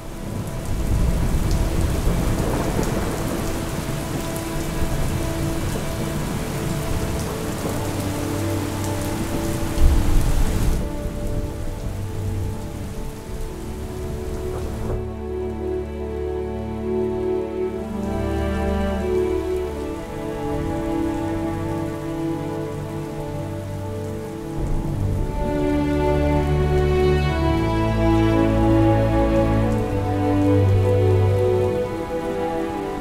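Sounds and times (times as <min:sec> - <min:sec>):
heavy rain pouring: 0:00.0 - 0:33.0
soft sustained music notes: 0:00.0 - 0:33.0
low rumbling thunder: 0:00.2 - 0:08.3, 0:09.1 - 0:15.0.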